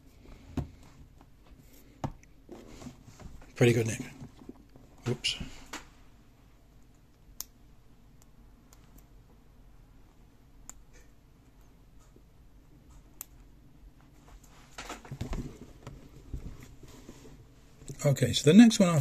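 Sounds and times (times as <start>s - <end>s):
book rustling and knocking: 14.7s - 17.1s.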